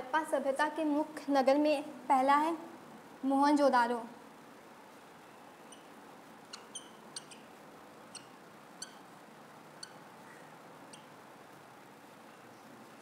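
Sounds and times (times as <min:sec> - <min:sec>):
faint room hiss: 0:00.0 - 0:13.0
marker squeaking on whiteboard: 0:05.7 - 0:05.9, 0:06.5 - 0:07.5.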